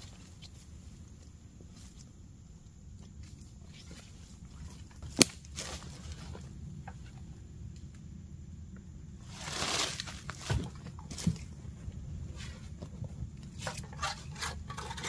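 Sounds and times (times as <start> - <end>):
sharp snap: 5.1 - 5.5
footsteps in dry leaves: 9.2 - 11.5.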